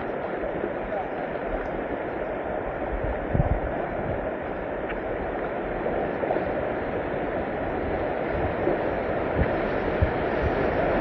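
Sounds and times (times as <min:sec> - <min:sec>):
rushing river water: 0:00.0 - 0:11.0.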